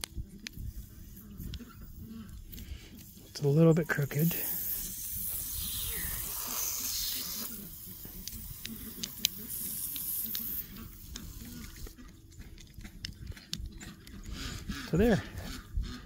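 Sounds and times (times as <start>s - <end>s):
water hissing from hose: 3.4s - 11.9s.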